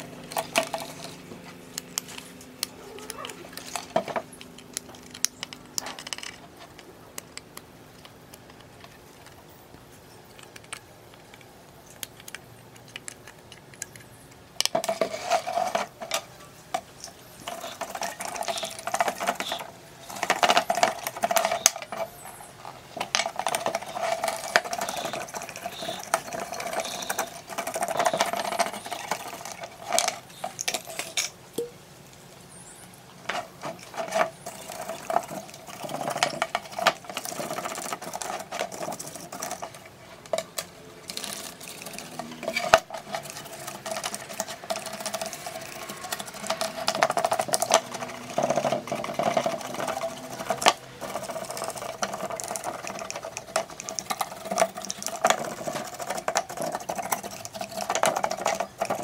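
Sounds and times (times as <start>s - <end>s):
stiff brush scrubbing: 14.8s - 30.6s, 41.0s - 59.0s.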